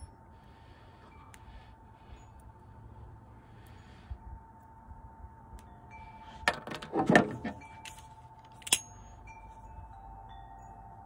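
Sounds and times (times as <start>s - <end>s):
faint steady tone: 0.0s - 11.0s
sharp click with metallic ring: 7.4s - 9.2s.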